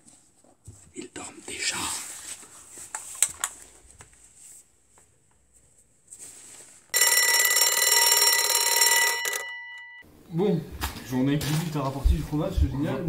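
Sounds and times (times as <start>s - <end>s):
alarm clock ringing: 6.9s - 10.0s.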